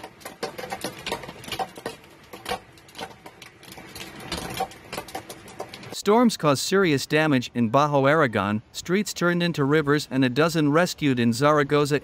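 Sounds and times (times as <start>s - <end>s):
hailstones clattering on hard surfaces: 0.0s - 6.0s.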